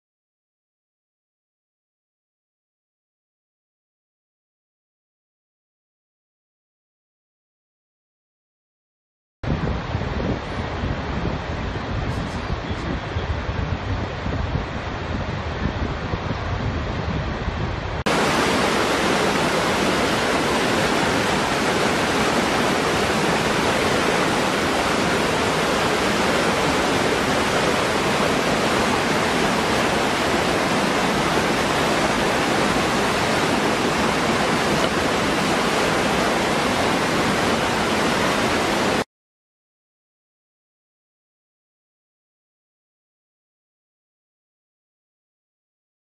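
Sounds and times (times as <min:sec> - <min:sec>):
waterfall pouring into pool: 0:18.1 - 0:39.0.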